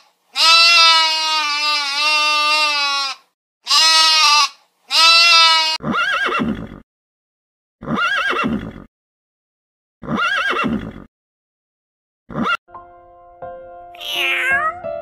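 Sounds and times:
sheep bleating: 0.3 - 5.8
horse whinnying: 2.8 - 6.8, 7.8 - 8.9, 10.0 - 11.1, 12.3 - 12.6.

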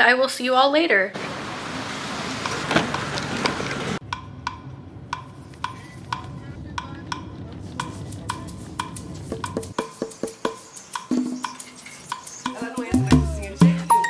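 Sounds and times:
low rumble: 4.0 - 9.7
wooden percussive beat: 4.0 - 14.0.

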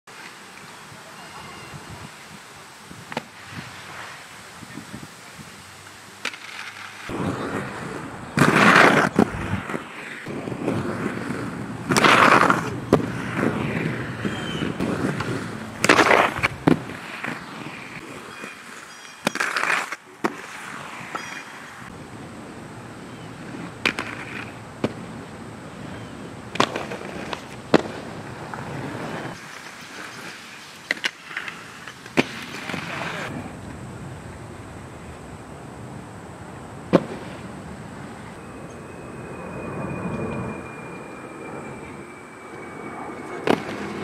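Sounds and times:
inline skates rolling on concrete: 2.8 - 33.8, 36.5 - 38.4, 43.2 - 44.0
skate grinds scraping: 6.2 - 21.9, 23.4 - 25.2, 25.8 - 33.4
skates clacking: 6.2 - 21.9, 23.4 - 25.1, 26.5 - 33.4.

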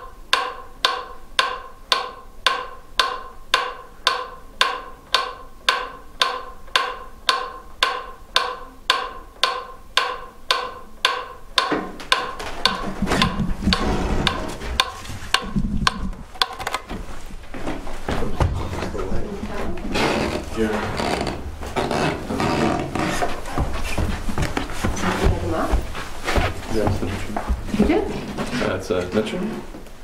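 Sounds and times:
sharp ticks with ringing tone: 0.0 - 16.5
rumbling and rustling noise: 12.0 - 28.9.

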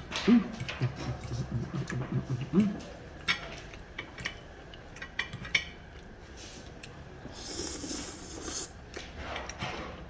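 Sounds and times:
noodle slurping: 7.3 - 8.8.

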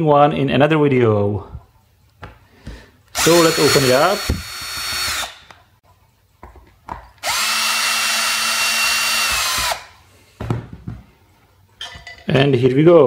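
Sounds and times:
cordless drill whining: 3.1 - 5.5, 7.2 - 9.9.

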